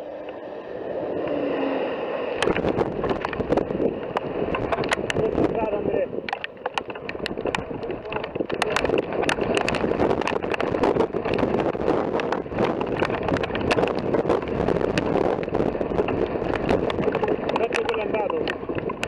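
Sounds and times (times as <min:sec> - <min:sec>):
wind on microphone: 0:00.0 - 0:19.0
sharp clicks and crackles: 0:02.4 - 0:19.0.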